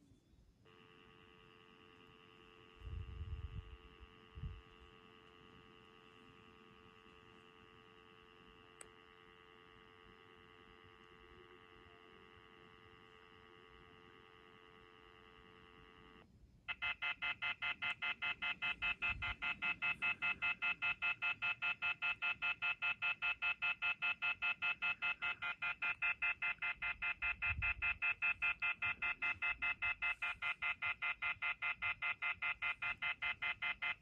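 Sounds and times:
faint steady phone tone: 0.0 - 34.0
shrill phone warning beeping: 14.4 - 34.0.

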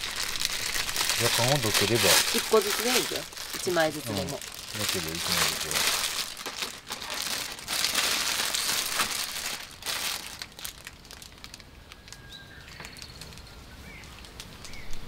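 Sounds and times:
plastic bag crinkling: 0.0 - 15.0
small birds chirping: 11.8 - 15.0.

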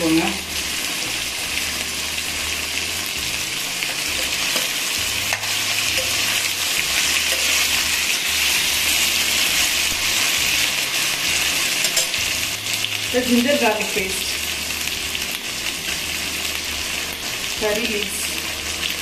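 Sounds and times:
vegetables sizzling in hot oil: 0.0 - 19.0
spoon clicking on pan: 11.8 - 12.2.

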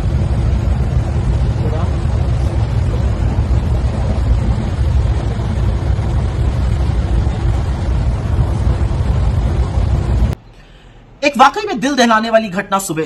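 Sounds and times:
moving train rumble: 0.0 - 10.4.

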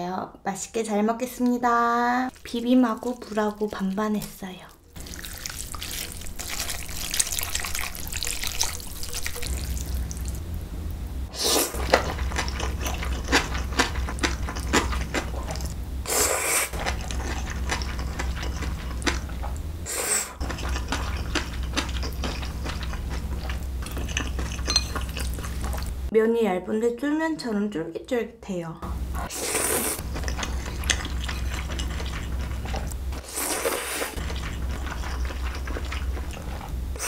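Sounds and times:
loud noodle slurps: 29.3 - 30.1, 33.2 - 34.4.

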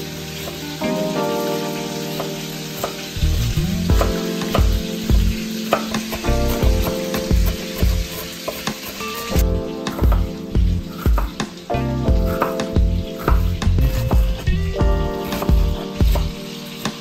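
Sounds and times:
background music with steady beat: 0.0 - 17.0
knife chopping on wooden board: 12.2 - 14.4.

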